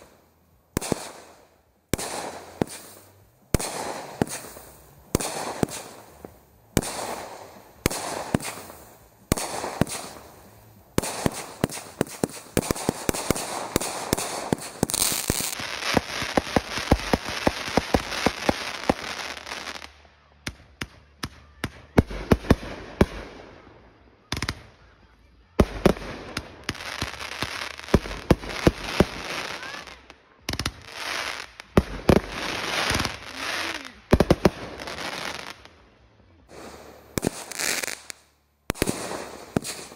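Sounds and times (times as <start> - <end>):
firework aerial bursts: 0.0 - 20.0, 25.6 - 35.7, 36.4 - 39.9
firework cake shots: 0.0 - 23.4, 36.4 - 39.9
firework crackling: 0.0 - 23.6, 25.6 - 35.8, 36.4 - 39.9.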